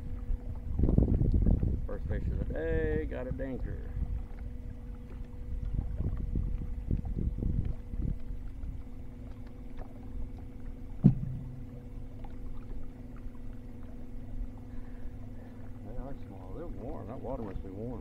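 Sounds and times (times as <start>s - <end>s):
boat motor humming: 0.0s - 18.0s
water and wind noise: 0.0s - 18.0s
sharp knock: 11.0s - 11.6s.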